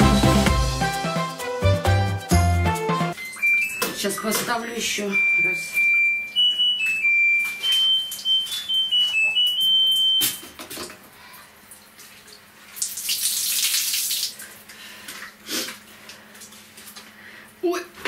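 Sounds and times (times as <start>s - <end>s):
washing machine electronic beeps: 3.2s - 10.6s.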